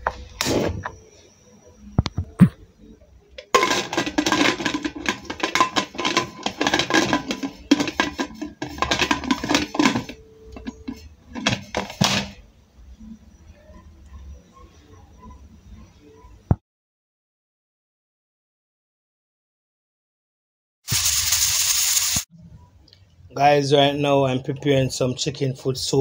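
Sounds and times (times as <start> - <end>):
metal pressure cooker clattering: 3.4 - 12.4.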